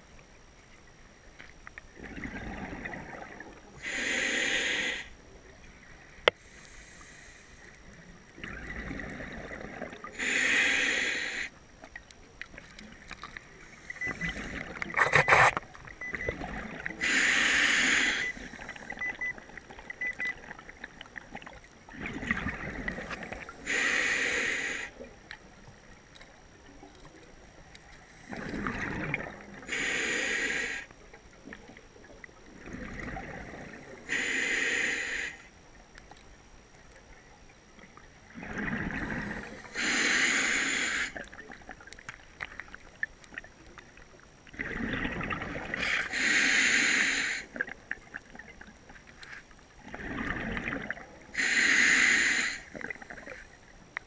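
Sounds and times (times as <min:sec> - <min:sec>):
exhaled bubbles underwater: 0:01.9 - 0:03.9, 0:08.3 - 0:10.3, 0:11.9 - 0:24.1, 0:26.6 - 0:30.0, 0:31.2 - 0:34.1, 0:37.6 - 0:40.0, 0:40.9 - 0:46.3, 0:49.8 - 0:51.4, 0:52.7 - 0:53.5
scuba regulator hissing inhale: 0:03.8 - 0:05.2, 0:06.4 - 0:07.7, 0:10.1 - 0:11.6, 0:17.0 - 0:18.9, 0:23.2 - 0:25.0, 0:29.7 - 0:30.9, 0:34.0 - 0:35.5, 0:39.1 - 0:41.2, 0:45.8 - 0:47.6, 0:51.3 - 0:52.8.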